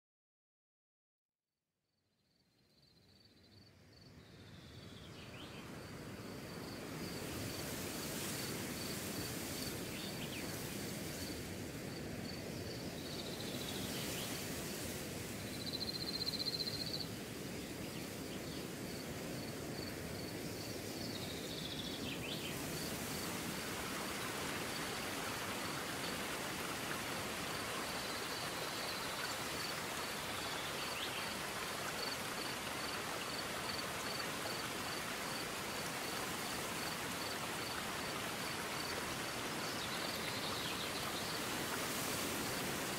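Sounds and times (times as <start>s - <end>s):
flowing creek water: 5.4s - 42.9s
high insect chirp: 15.5s - 17.2s, 27.3s - 37.8s.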